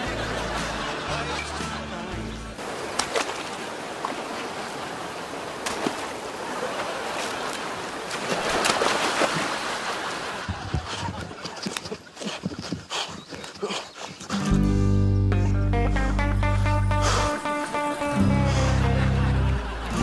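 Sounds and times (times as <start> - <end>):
water splashing: 2.6 - 10.5.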